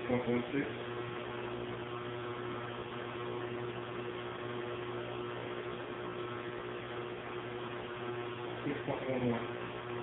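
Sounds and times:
machinery hum: 0.0s - 10.0s.

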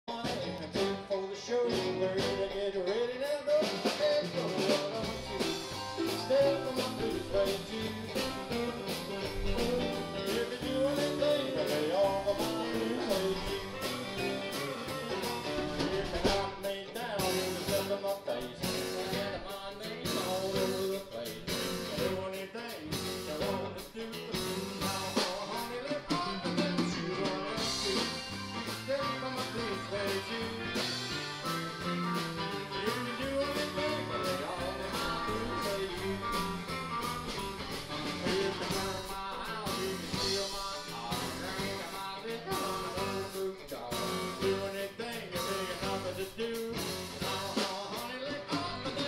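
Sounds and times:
live rock band playing: 0.1s - 49.0s.

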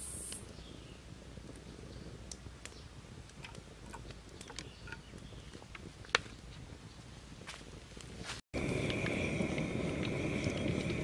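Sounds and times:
high hiss: 0.0s - 0.5s
fire crackling: 0.0s - 11.0s
liquid trickling into a pot: 8.6s - 11.0s.

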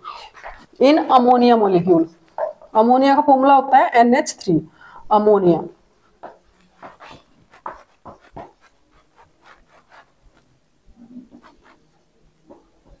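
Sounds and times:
marker squeaking on whiteboard: 0.0s - 2.8s, 6.1s - 13.0s.

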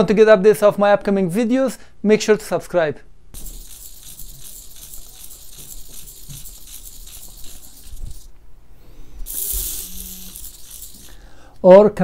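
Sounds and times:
servo motors whirring: 3.4s - 8.3s, 9.2s - 11.2s.

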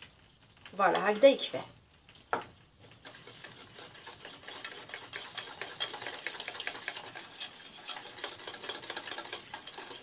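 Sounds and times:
whisk scraping a metal saucepan: 2.8s - 10.0s.

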